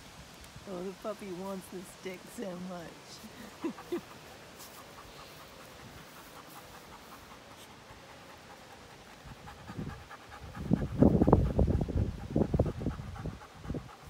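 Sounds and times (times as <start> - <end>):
dog panting: 3.0 - 14.0.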